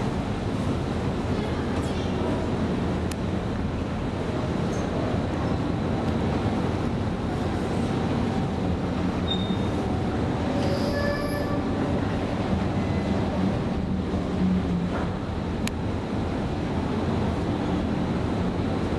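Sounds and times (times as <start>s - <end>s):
metro train rumbling: 0.0s - 18.9s
high squeal: 10.6s - 11.7s.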